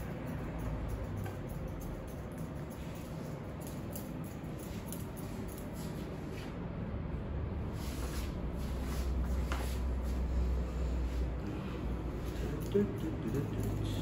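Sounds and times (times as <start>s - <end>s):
scissors snipping hair: 0.0s - 6.0s, 12.1s - 14.0s.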